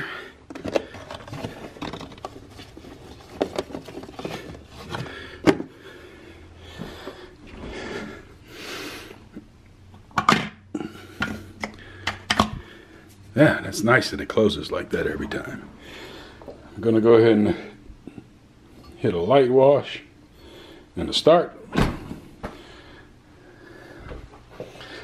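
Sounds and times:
items knocking and scraping in cabinet: 0.4s - 5.8s.

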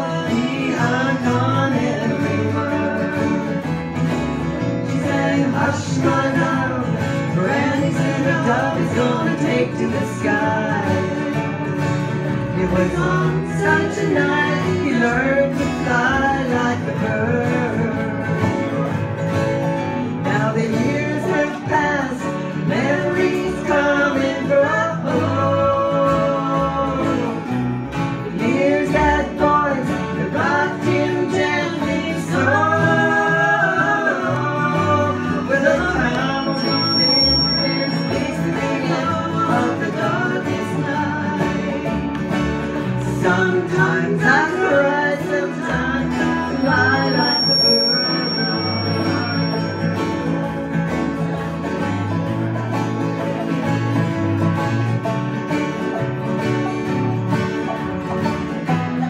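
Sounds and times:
acoustic guitars strumming: 0.0s - 59.0s
banjo strumming: 0.0s - 59.0s
melody line: 36.0s - 39.2s, 46.1s - 50.9s.

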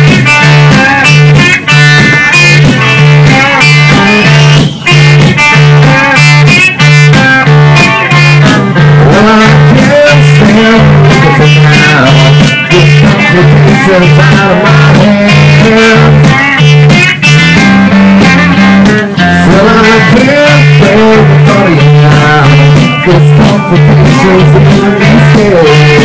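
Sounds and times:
bass guitar: 0.0s - 26.0s
electric guitar riff: 0.0s - 26.0s
man singing: 2.9s - 4.9s, 5.5s - 17.1s, 18.2s - 26.0s.

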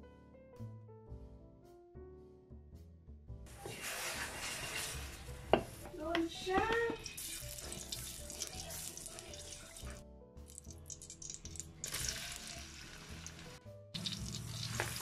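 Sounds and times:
spatula scraping wok: 3.5s - 10.0s.

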